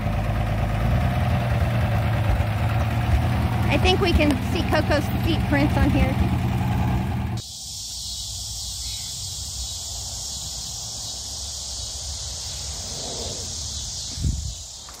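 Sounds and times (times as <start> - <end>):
car engine idling: 0.0 - 7.4
crickets chirping: 7.4 - 15.0.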